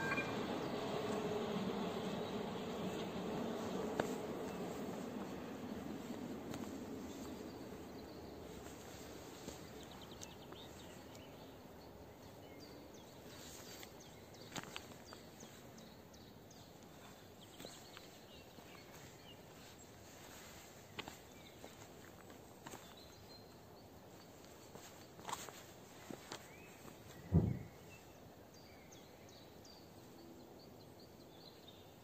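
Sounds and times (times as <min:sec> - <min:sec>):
faint bird chirps: 0:00.0 - 0:01.2.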